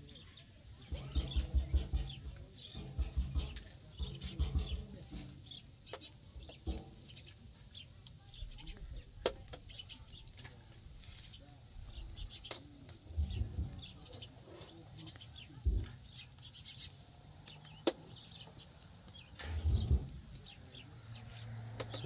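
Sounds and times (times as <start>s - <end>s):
birds calling and clucking: 0.0s - 22.0s
sharp knocks: 0.9s - 5.4s.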